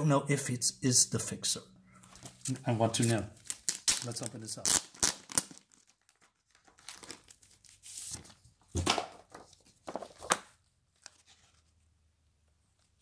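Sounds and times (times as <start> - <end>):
paper rustling and crinkling: 2.0 - 11.8.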